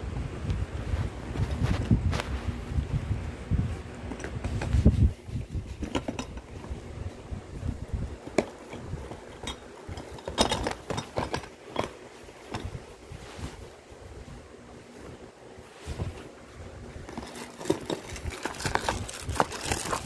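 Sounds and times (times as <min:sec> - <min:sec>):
cardboard flaps rustling: 0:14.8 - 0:20.0
cardboard box being handled: 0:17.0 - 0:20.0.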